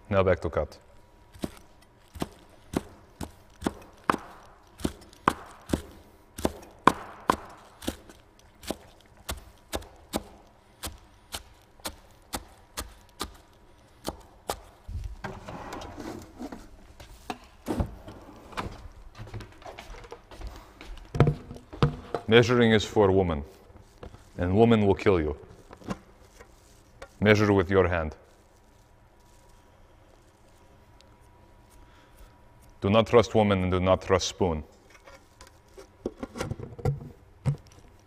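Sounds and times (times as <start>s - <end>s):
knife chopping on wooden board: 1.4s - 13.4s
soft rustling of herbs: 10.4s - 15.2s, 22.3s - 33.2s.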